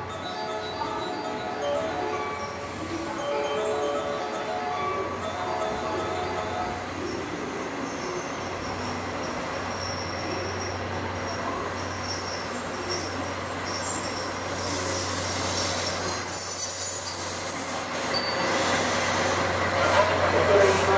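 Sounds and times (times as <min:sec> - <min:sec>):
train wheels squealing on rails: 0:02.0 - 0:03.0, 0:05.6 - 0:20.9.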